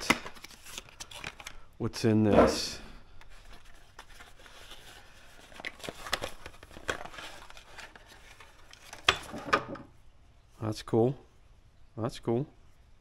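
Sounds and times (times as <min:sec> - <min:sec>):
packaging rustling and crinkling: 0:00.0 - 0:01.6, 0:03.3 - 0:09.1.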